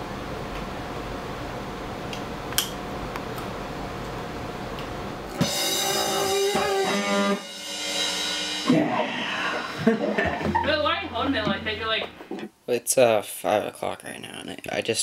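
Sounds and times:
room hiss: 0.0 - 15.0
electric guitar chords: 5.3 - 12.3
drum kit: 5.3 - 12.5.

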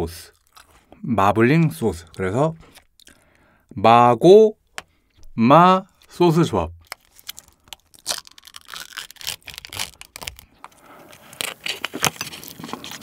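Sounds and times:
foil lid crinkling and tearing: 6.8 - 13.0
crunchy bite into fried chicken: 7.2 - 10.5.

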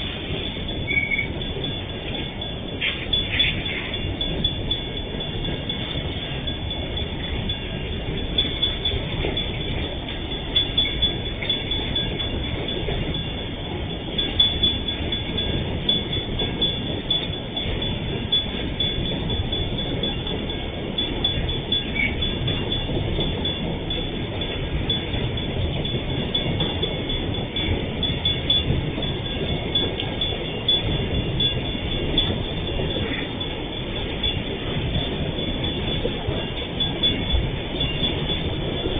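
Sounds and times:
steel wheels rumbling on rails: 0.0 - 38.9
faint high squeals: 0.8 - 1.4.

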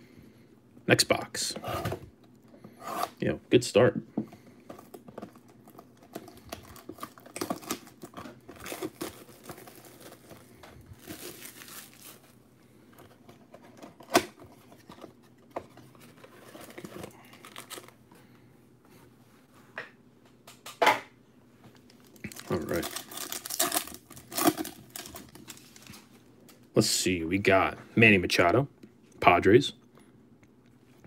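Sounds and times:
plastic wrap crinkling and tearing: 5.3 - 12.4, 21.9 - 26.1.

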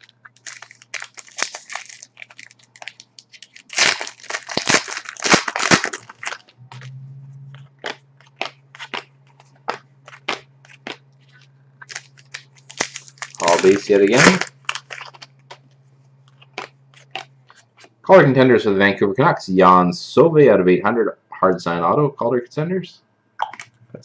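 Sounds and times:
foil wrapper crinkling: 0.0 - 6.8, 7.7 - 17.9.

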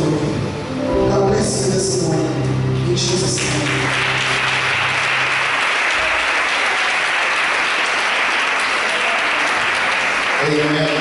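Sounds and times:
congregation applauding: 3.1 - 11.0.

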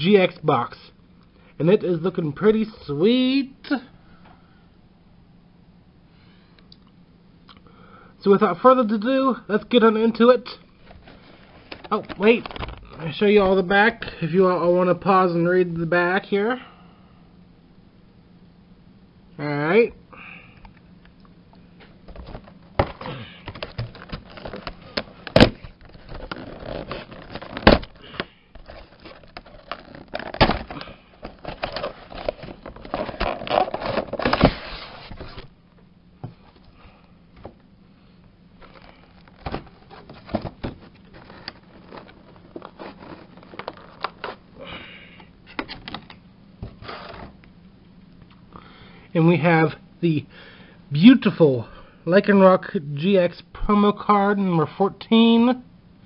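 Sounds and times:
plastic crackling and clicking: 22.1 - 34.4, 38.6 - 44.4
rustling: 22.1 - 35.5, 38.6 - 44.5.

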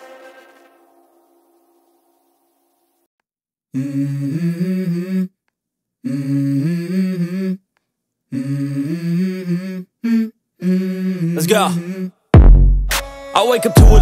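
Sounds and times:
person humming a melody: 3.7 - 5.4, 6.0 - 7.6, 8.3 - 12.2.

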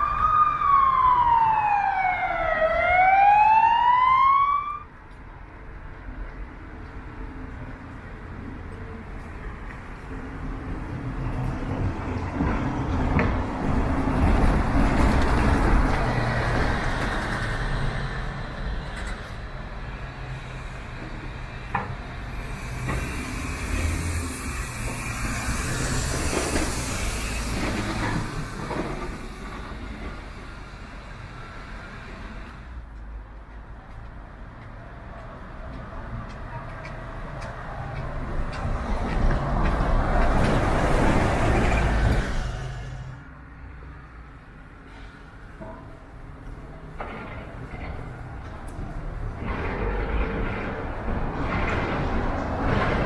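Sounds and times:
passing cars and bus: 0.0 - 53.0
heavy engine rumble: 10.9 - 34.1, 44.8 - 53.0.

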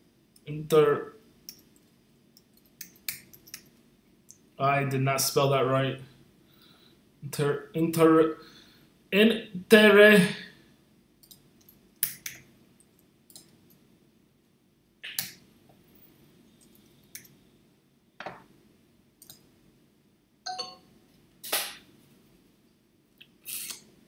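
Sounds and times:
keyboard and mouse clicks: 1.5 - 3.7, 11.2 - 13.6, 19.2 - 19.4.

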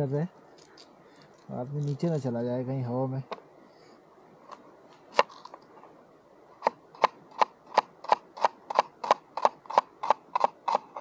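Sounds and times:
knife chopping vegetables on board: 7.0 - 10.9.

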